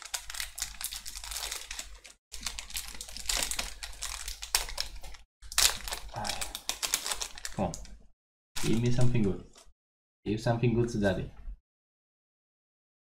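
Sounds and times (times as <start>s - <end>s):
foil wrapper crinkling: 0.0s - 8.0s, 8.6s - 9.7s.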